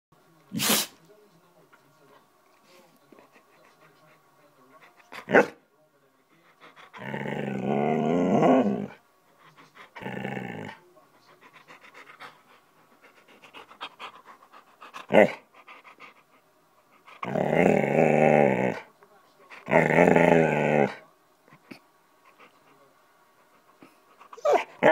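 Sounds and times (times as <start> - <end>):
dog moaning: 6.6 - 9.0, 9.7 - 10.8, 11.4 - 16.2, 17.0 - 18.9, 19.5 - 21.0, 23.8 - 24.9
dog breathing: 11.1 - 17.2.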